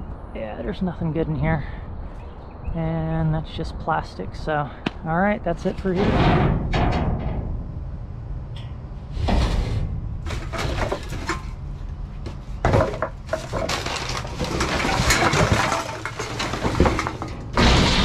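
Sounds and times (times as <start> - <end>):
cans and bottles clattering in dumpster: 9.3 - 18.0.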